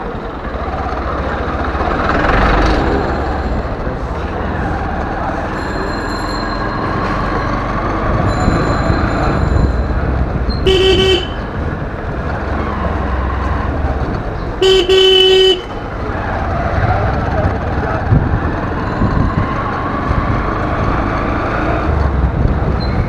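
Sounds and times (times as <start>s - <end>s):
motorcycle engine rumble: 0.0s - 23.0s
motorcycle horn beeping: 10.5s - 11.5s, 14.6s - 15.8s.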